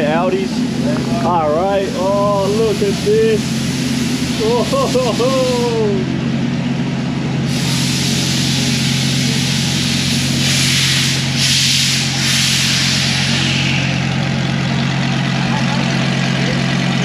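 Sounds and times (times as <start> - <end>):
machinery humming: 0.0 - 17.0
rushing hiss: 1.9 - 5.9, 7.5 - 14.0.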